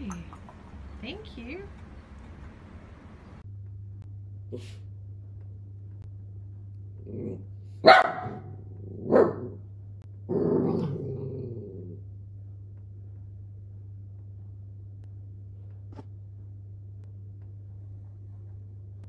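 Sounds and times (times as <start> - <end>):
steady low hum: 0.0 - 19.0
small dog barking: 7.8 - 9.6.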